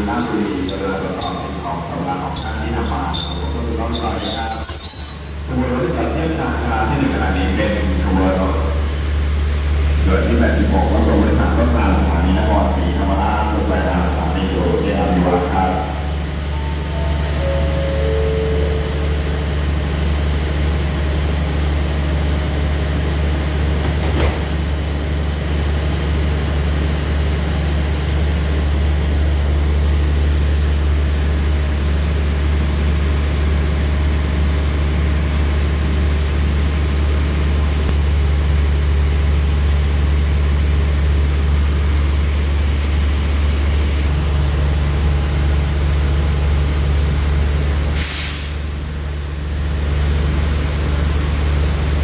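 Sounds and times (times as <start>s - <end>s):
falling chime: 0.0s - 6.4s, 16.5s - 19.6s.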